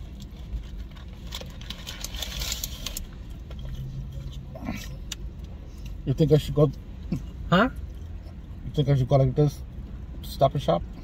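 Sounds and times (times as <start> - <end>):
food wrappers crinkling: 0.0 - 3.9.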